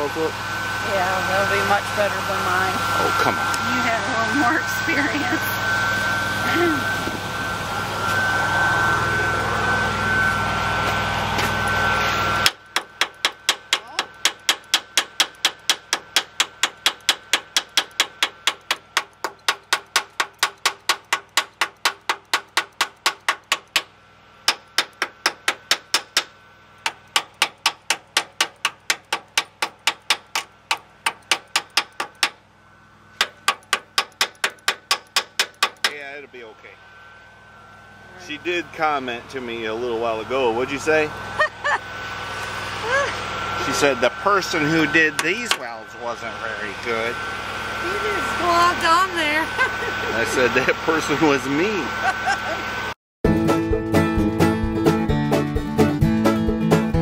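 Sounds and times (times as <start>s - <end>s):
hammer chipping on steel welds: 12.4s - 32.4s, 33.1s - 36.1s, 45.1s - 45.7s.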